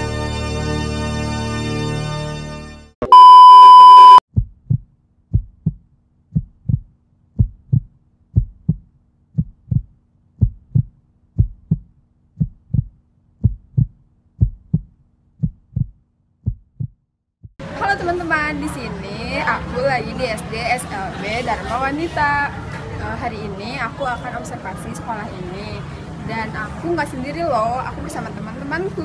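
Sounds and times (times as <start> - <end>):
loud steady high beep: 3.0 - 4.2
heartbeat sound effect: 4.3 - 17.6.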